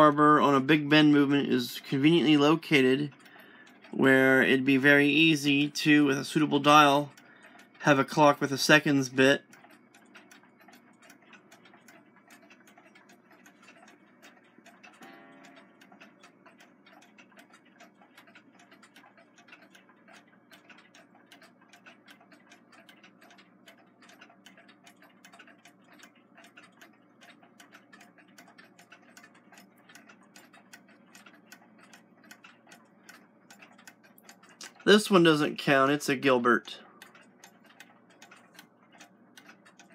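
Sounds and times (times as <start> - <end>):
alarm clocks ticking: 0.0 - 39.9.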